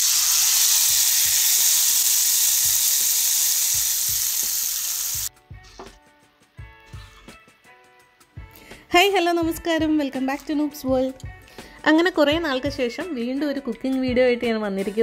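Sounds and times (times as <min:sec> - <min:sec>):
spices sizzling in hot oil: 0:00.0 - 0:05.3.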